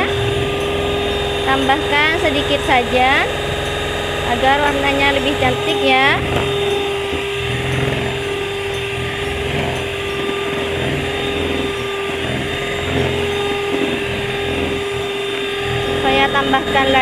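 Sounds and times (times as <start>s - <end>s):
electric hand mixer whipping batter: 0.0s - 17.0s.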